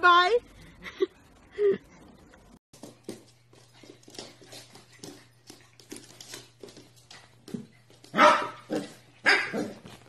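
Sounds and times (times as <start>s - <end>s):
puppy paws tapping on hardwood floor: 2.8s - 10.0s.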